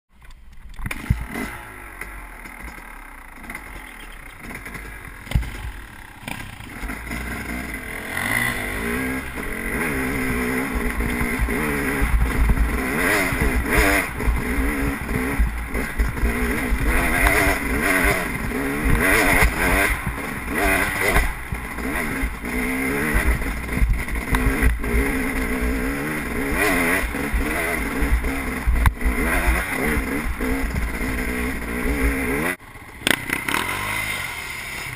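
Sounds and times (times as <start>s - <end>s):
motorcycle engine revving: 0.5s - 34.9s.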